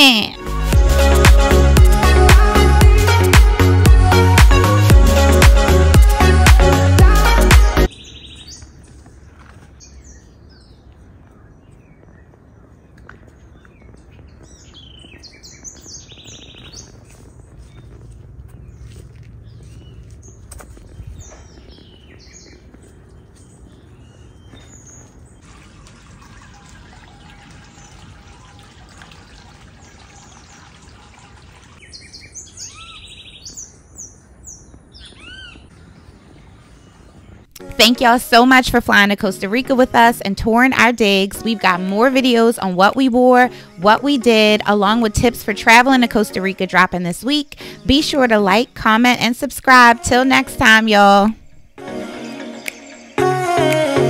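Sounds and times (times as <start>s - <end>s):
outdoor background rush: 0.0s - 51.8s
birds chirping: 7.2s - 54.0s
fountain water trickling: 25.4s - 32.2s
whistled bird calls: 31.8s - 35.7s
buzzy bird trill: 34.9s - 35.7s.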